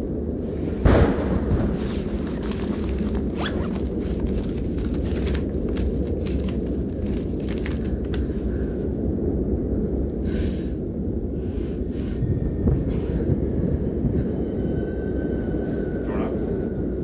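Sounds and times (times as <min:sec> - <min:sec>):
low rumble: 0:00.0 - 0:17.0
paper rustling: 0:01.5 - 0:08.4.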